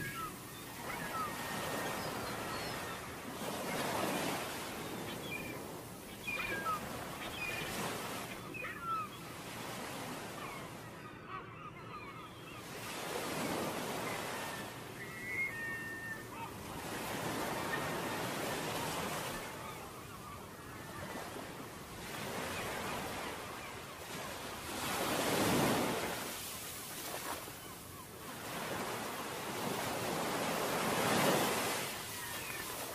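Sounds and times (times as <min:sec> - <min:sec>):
ocean waves washing: 0:21.0 - 0:32.9.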